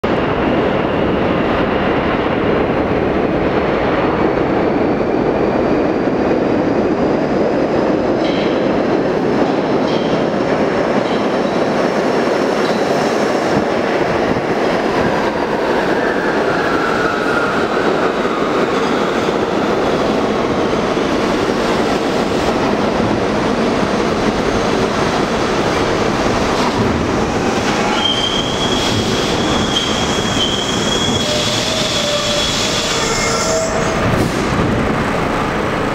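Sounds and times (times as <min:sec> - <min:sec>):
steel train wheels on rail: 0:00.0 - 0:35.9
wheel squeal: 0:27.9 - 0:34.0
high brake squeal: 0:27.9 - 0:34.1.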